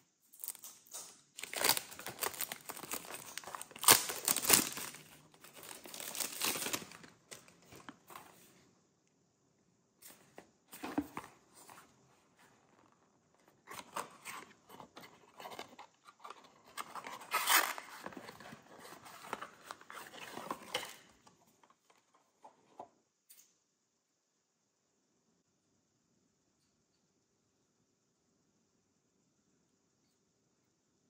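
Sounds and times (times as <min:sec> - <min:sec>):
cardboard box paper rustling: 0:01.4 - 0:08.5, 0:13.5 - 0:21.8.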